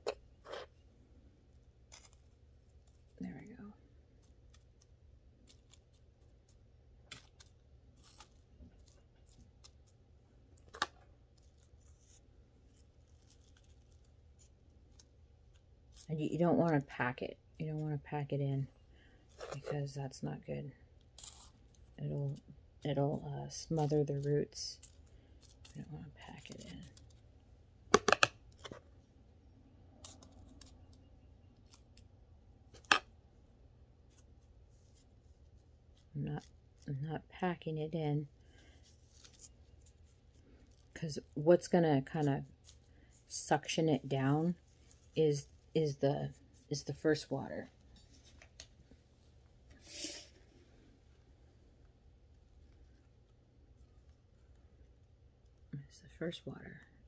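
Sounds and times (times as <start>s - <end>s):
potting mix scratching by hand: 49.8s - 50.5s.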